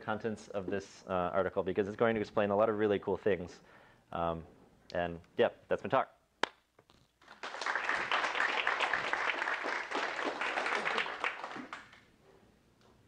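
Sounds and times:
audience applauding: 7.2s - 12.1s.

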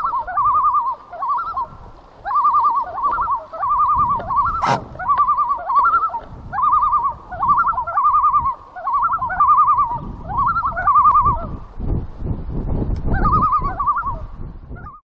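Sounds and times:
animal calling in quavering phrases: 0.0s - 11.5s
sharp click: 4.6s - 4.9s.

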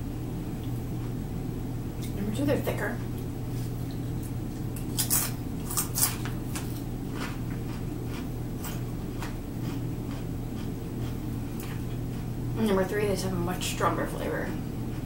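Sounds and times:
potato chip crunching: 4.8s - 12.3s.

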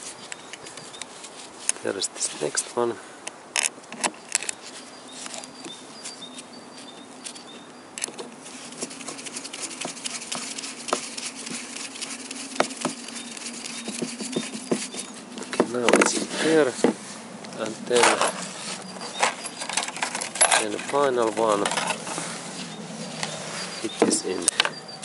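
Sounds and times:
screwdriver clicking and scraping metal: 17.9s - 22.2s.

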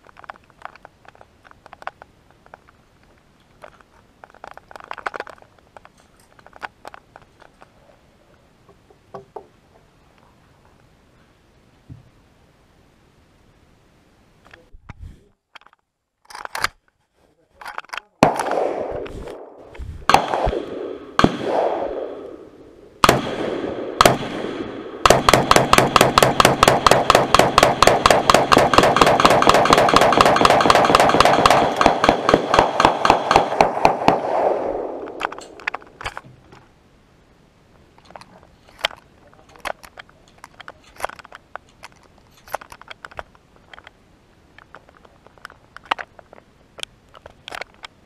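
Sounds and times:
gun handling clicks: 0.0s - 7.7s, 15.6s - 16.8s, 25.1s - 36.7s, 38.0s - 44.0s, 44.6s - 48.0s
single gunshots: 18.2s - 35.7s
rapid gunfire: 20.1s - 22.2s, 23.0s - 35.1s.

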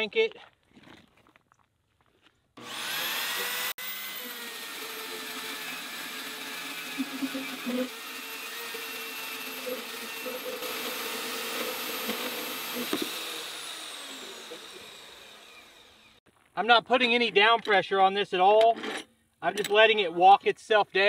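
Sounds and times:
bandsaw cutting steel: 2.6s - 16.2s.

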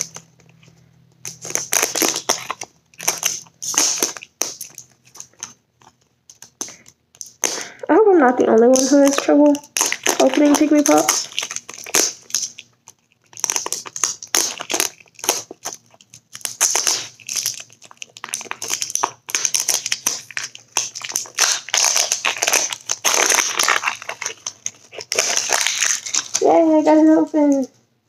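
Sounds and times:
plastic packaging crinkling: 0.0s - 27.7s.

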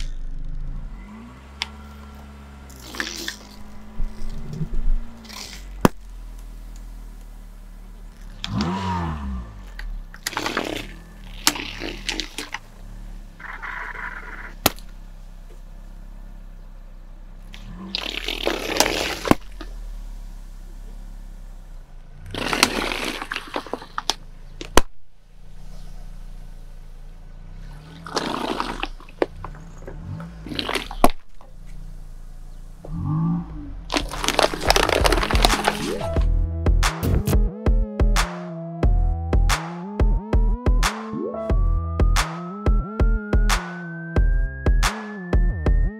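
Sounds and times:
car engine running: 0.0s - 45.9s
plastic bottles cracking: 10.1s - 12.6s, 22.3s - 24.9s, 33.9s - 36.1s
balloons bursting with splashes: 10.3s - 12.5s, 22.3s - 24.1s, 28.0s - 29.0s, 30.5s - 31.2s, 33.9s - 36.1s.

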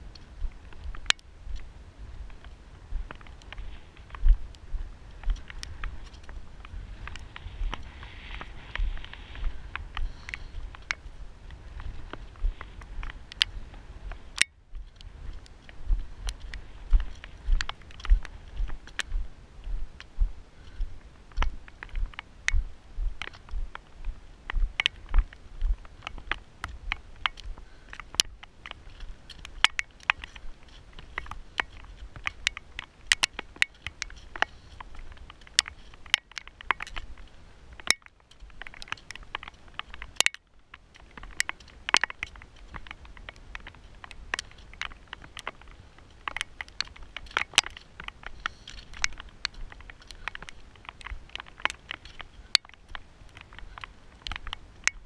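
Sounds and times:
footsteps crunching on scree: 0.0s - 55.0s
stones clicking: 23.2s - 55.0s.

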